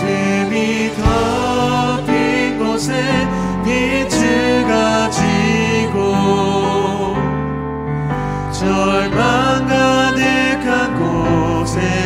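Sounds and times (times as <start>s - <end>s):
instrumental accompaniment low chords: 0.0s - 4.7s
man and woman singing together: 0.0s - 7.3s, 8.5s - 12.0s.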